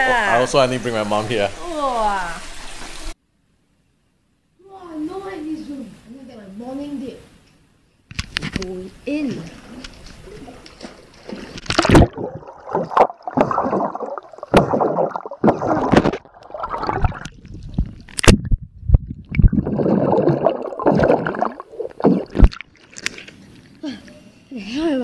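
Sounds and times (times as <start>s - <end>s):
underwater sloshing and bubbling: 9.4s - 23.8s
water knocking against microphone: 9.9s - 22.6s
splash into pool: 10.4s - 17.4s.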